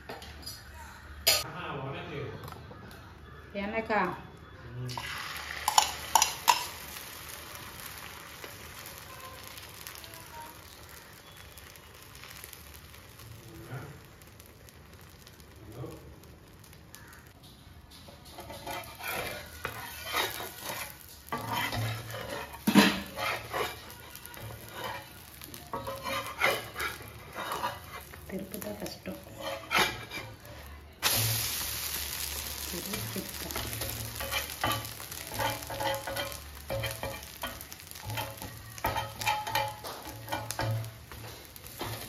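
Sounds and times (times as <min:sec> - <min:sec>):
egg sizzling in a pan: 0:04.9 - 0:42.0
spoon and spatula scraping pan: 0:18.0 - 0:30.8, 0:32.9 - 0:42.0.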